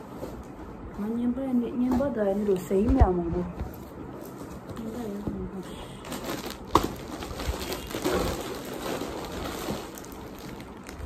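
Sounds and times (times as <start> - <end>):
plastic bags rustling: 3.8 - 11.0.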